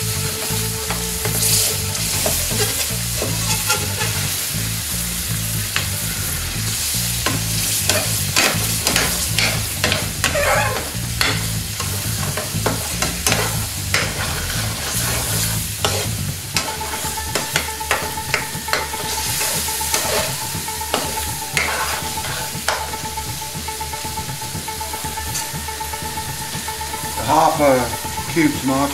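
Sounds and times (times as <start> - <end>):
sauce bubbling and sizzling: 0.0 - 28.7
steady tone: 0.0 - 28.9
metal spoon scraping pan: 0.9 - 4.3, 7.2 - 22.9.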